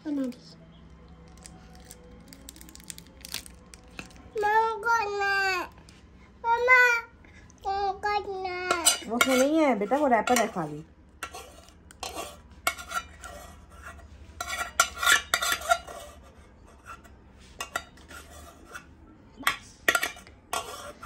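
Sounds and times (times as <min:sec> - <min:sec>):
metal spoon scraping steel pot: 0:08.7 - 0:21.0.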